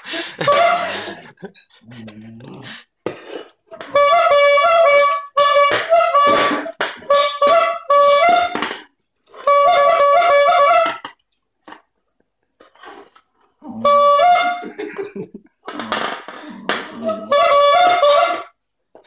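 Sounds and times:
bulb squeeze horn honking: 0.4 - 1.0, 3.9 - 8.6, 9.4 - 11.1, 13.8 - 14.7, 17.0 - 18.6.

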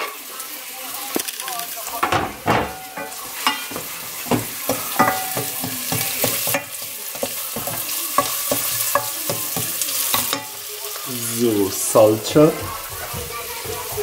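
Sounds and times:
onions sizzling in a pot: 0.0 - 14.0
wooden spoon scraping a pot: 11.8 - 14.0.

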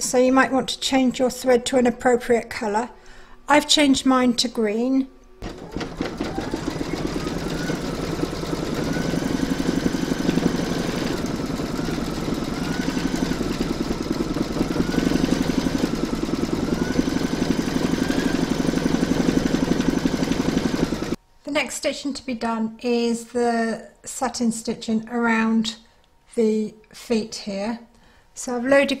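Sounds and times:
embroidery machine stitching: 5.4 - 21.2.

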